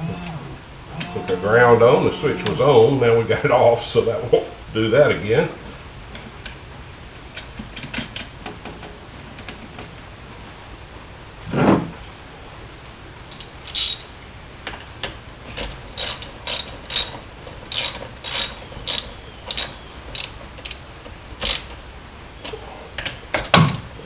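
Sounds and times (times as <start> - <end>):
ratchet wrench clicking: 13.3 - 14.1, 16.0 - 20.8, 21.4 - 21.8.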